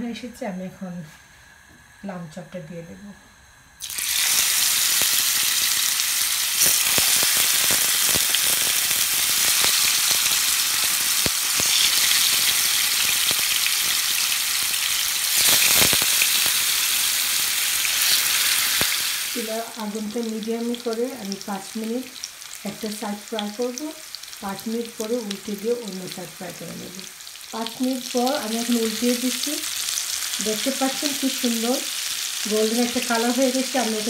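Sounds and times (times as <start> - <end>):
meat sizzling in oil: 3.8 - 34.0.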